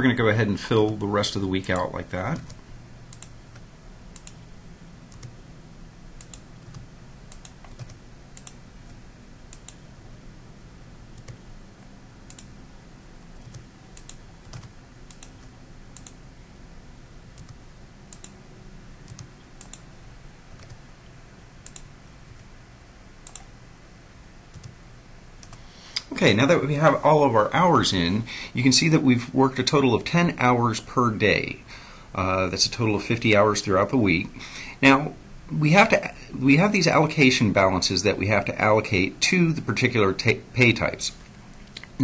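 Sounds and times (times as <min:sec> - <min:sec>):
low steady hum: 0:00.0 - 0:42.0
quiet keyboard typing: 0:01.7 - 0:04.4, 0:05.1 - 0:05.4, 0:06.2 - 0:09.8, 0:11.1 - 0:11.4, 0:12.2 - 0:12.5, 0:13.4 - 0:16.2, 0:17.3 - 0:18.4, 0:19.0 - 0:19.9, 0:20.5 - 0:20.8, 0:21.6 - 0:22.5, 0:23.2 - 0:23.5, 0:24.5 - 0:24.8, 0:25.4 - 0:25.6.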